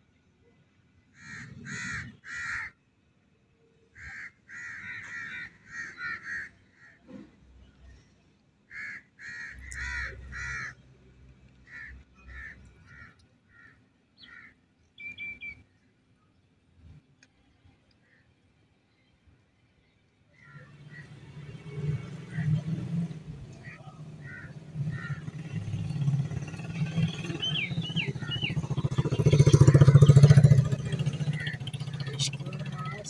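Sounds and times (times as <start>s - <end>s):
bird calling: 23.5s - 33.0s.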